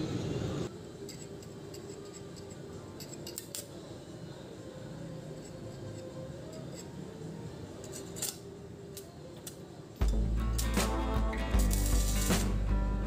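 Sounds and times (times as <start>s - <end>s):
light metallic clicks and scrapes: 1.0s - 3.9s, 5.3s - 7.1s, 7.8s - 10.8s.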